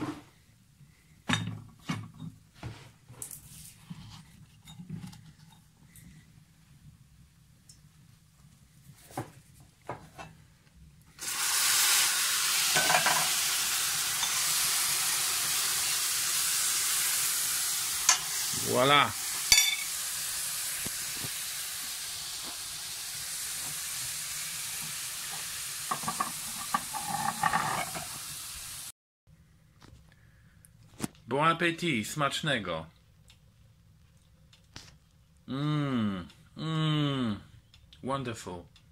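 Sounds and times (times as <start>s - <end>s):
food sizzling in a pan: 11.1s - 28.9s.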